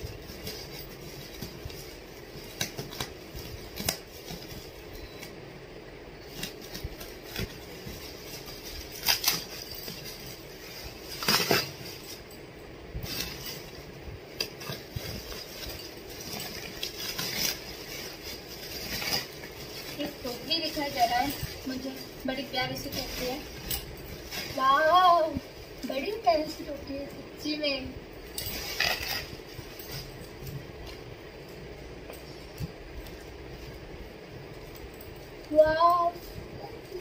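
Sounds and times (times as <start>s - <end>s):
plastic packaging crackling: 6.2s - 12.3s, 13.0s - 26.8s.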